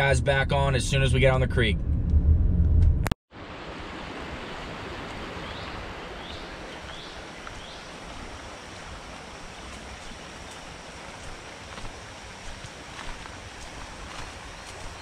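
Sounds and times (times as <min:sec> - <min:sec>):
creek flowing: 0:03.4 - 0:15.0
bird chirping: 0:05.4 - 0:07.9, 0:14.4 - 0:15.0.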